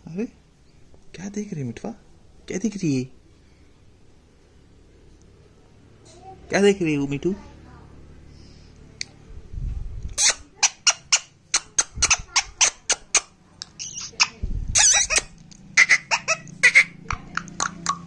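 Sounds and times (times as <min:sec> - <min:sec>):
parakeet chattering: 0:10.2 - 0:18.0.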